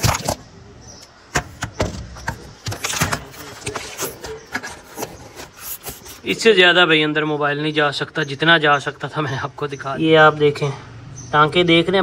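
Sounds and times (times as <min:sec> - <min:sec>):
phone knocking and scraping on metal: 0:01.3 - 0:06.4.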